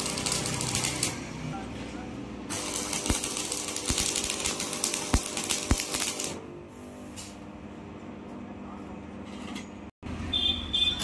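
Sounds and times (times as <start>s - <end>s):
welding arc crackling: 0.0s - 1.4s, 2.5s - 6.4s.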